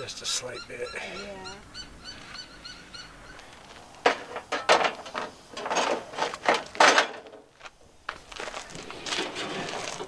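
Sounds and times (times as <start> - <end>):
metal tray knocking and scraping: 4.0 - 7.4.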